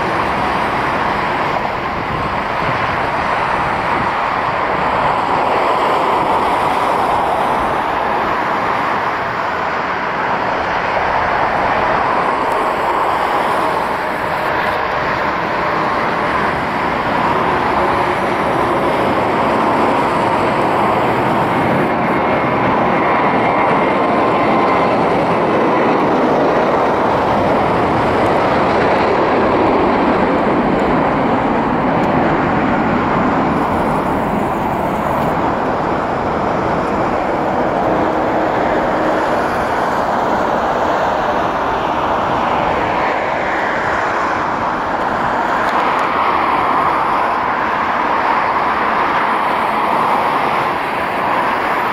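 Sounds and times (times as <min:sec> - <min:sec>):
jet engines at takeoff power: 0:00.0 - 0:51.9.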